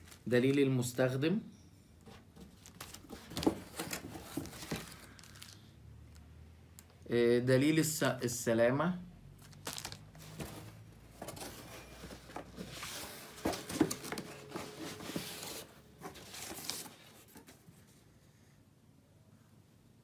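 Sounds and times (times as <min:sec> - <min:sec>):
cardboard and paper rustling: 0:02.1 - 0:05.7, 0:09.4 - 0:18.0.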